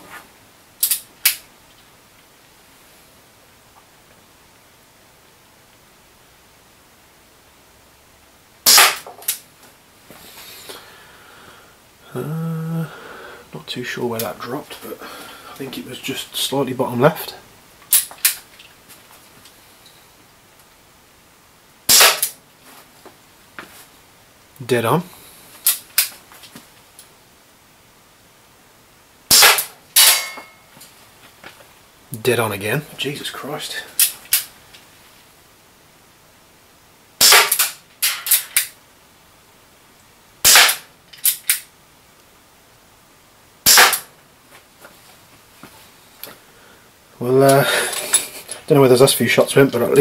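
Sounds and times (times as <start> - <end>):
airsoft revolver shot: 8.6 - 9.1, 21.9 - 22.4, 29.3 - 30.4, 37.2 - 38.6, 40.4 - 41.6, 43.6 - 44.1.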